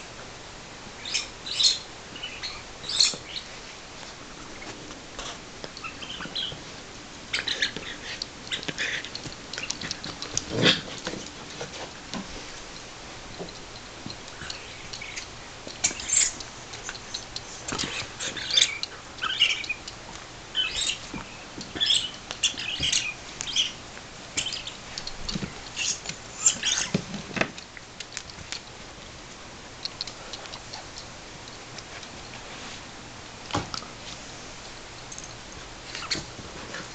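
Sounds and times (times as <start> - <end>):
dogs tapping and scuffling: 7.4 - 12.6, 15.6 - 19.5, 24.4 - 28.6.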